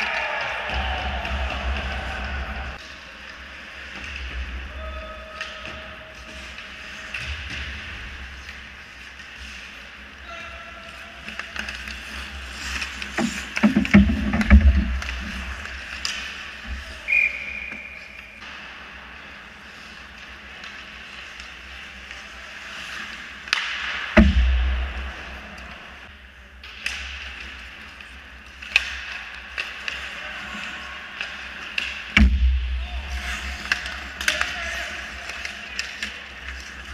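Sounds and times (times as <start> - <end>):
sticks and puck clacking: 0.0 - 36.9
skate blades scraping ice: 6.1 - 24.2, 33.0 - 36.9
heavy knocks: 13.6 - 15.0, 24.2 - 25.1.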